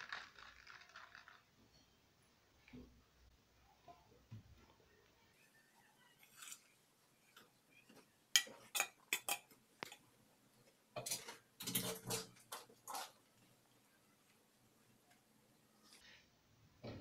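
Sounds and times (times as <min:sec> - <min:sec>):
spoon clinking on steel plate: 0:08.4 - 0:10.0.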